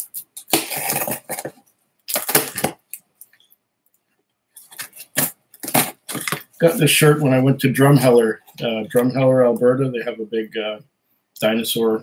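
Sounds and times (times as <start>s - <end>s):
knife cutting cardboard box: 0.5s - 2.8s, 4.8s - 6.4s.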